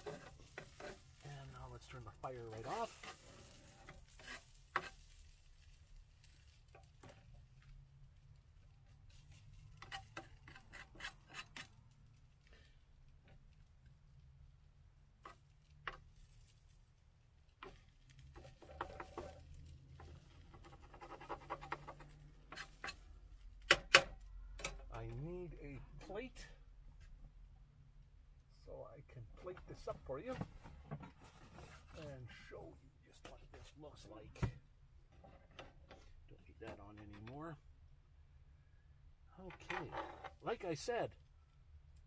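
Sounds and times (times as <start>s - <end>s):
metal spatula scraping a pan: 0.0s - 7.5s, 9.1s - 11.8s, 17.6s - 23.3s.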